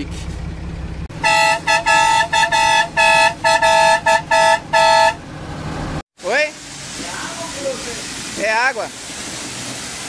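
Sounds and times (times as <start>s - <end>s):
two-note truck horn honking: 1.1s - 5.2s.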